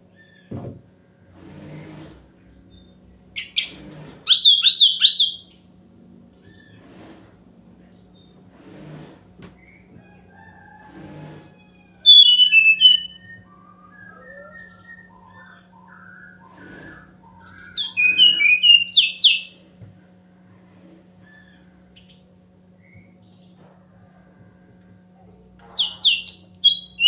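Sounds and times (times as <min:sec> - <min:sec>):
soft bird twittering: 0:02.7 - 0:05.6, 0:11.5 - 0:19.6, 0:25.7 - 0:27.0
bird whistled song bursts: 0:03.4 - 0:05.6, 0:11.5 - 0:19.5, 0:25.7 - 0:27.0.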